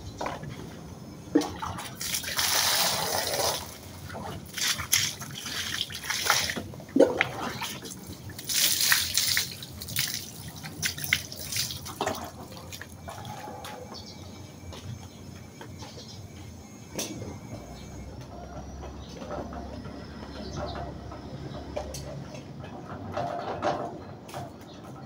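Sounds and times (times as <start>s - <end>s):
water splashing onto plastic mat: 1.9s - 3.8s, 4.4s - 13.0s
water dripping: 4.4s - 13.3s
water streaming off mat: 8.4s - 12.1s.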